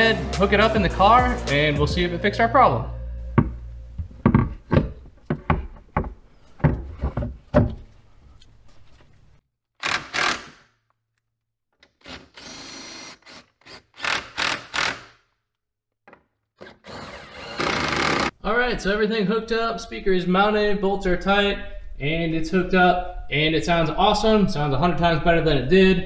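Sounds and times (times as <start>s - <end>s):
cordless drill tightening bolts: 9.8s - 10.6s, 11.8s - 15.1s.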